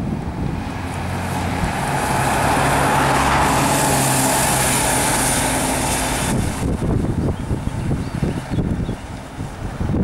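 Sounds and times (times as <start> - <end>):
bus diesel engine hum: 0.0 - 10.0
tyre and road noise: 0.0 - 10.0.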